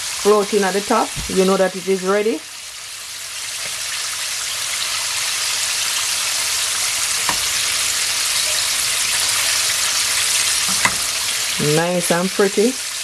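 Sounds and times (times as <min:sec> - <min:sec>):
chicken deep-frying in oil: 0:00.0 - 0:13.0.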